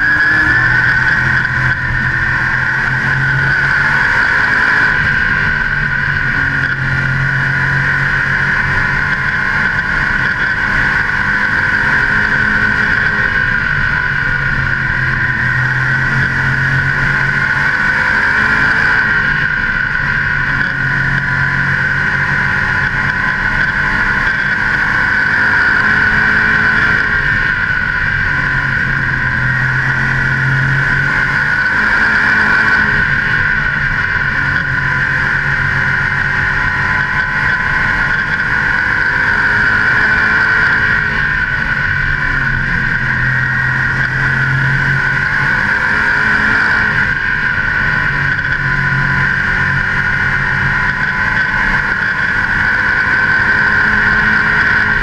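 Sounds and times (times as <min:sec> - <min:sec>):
race car engine running hard: 0:00.0 - 0:55.0.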